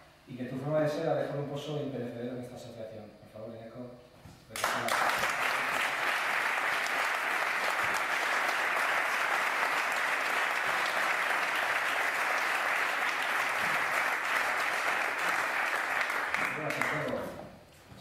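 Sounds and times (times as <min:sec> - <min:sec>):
audience clapping: 0:04.6 - 0:17.3.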